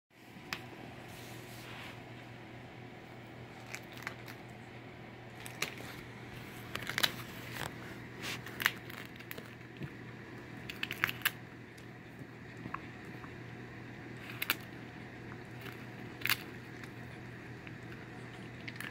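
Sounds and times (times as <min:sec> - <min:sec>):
dog cracking peanut shell: 0:10.6 - 0:11.4.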